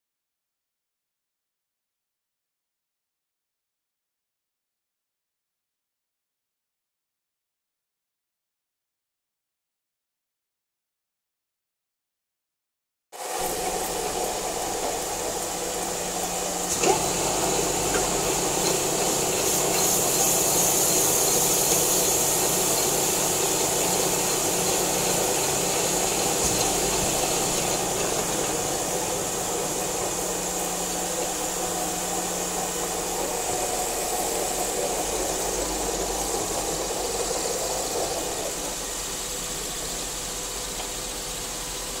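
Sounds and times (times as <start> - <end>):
coolant spray hiss: 13.2 - 42.0
metalworking machinery humming: 13.2 - 42.0.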